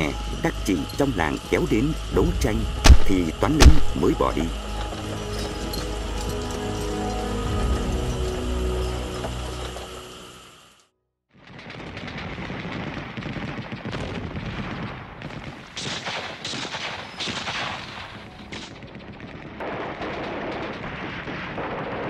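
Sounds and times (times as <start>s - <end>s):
loud blasts: 0.0s - 6.3s
rapid gunfire crackle: 0.0s - 6.8s, 11.3s - 22.0s.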